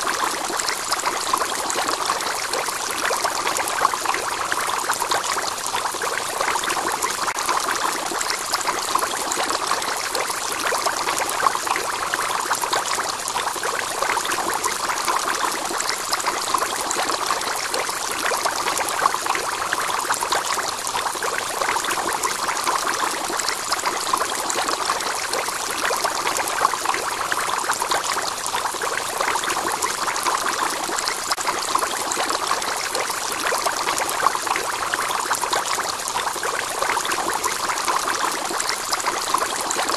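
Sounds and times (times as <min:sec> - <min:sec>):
aquarium water pouring: 0:00.0 - 0:39.9.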